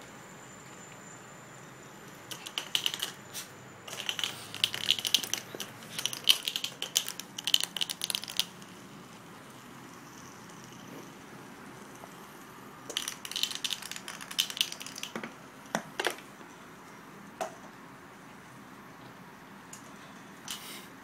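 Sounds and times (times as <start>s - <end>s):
toy clattering on tile floor: 2.1s - 11.2s, 12.8s - 16.4s.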